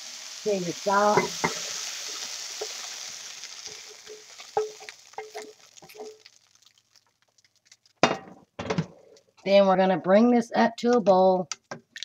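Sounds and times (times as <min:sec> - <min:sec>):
meat sizzling in a frying pan: 0:00.0 - 0:08.1
spatula knocking and scraping pan: 0:01.1 - 0:01.8, 0:03.7 - 0:06.3.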